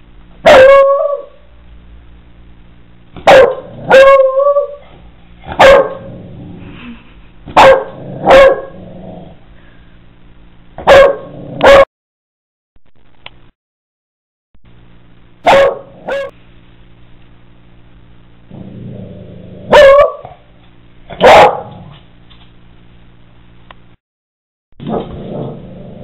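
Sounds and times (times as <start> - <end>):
dog barking: 0.4 - 1.4, 3.2 - 4.8, 5.5 - 6.1, 7.6 - 8.8, 10.8 - 11.9, 15.4 - 16.3, 19.7 - 20.4, 21.1 - 21.8.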